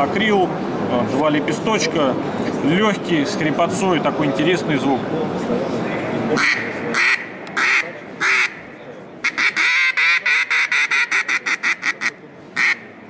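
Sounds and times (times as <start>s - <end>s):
duck call quacks: 6.4s - 8.6s, 9.2s - 12.9s.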